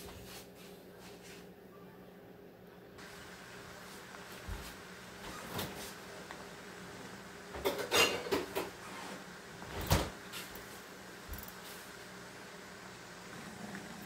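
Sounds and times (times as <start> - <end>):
kitchen knocks and clinks: 7.6 - 8.7.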